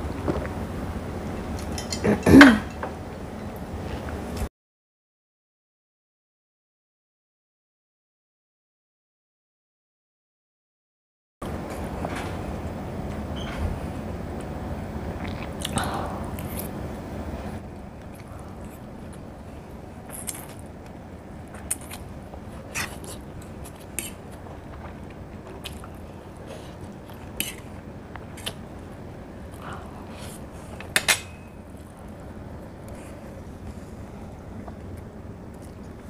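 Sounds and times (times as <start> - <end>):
steady low hum: 0.0 - 4.5, 11.4 - 36.0
person chewing: 15.1 - 16.8, 17.8 - 31.0
mouth smacks and clicks: 15.2 - 16.7.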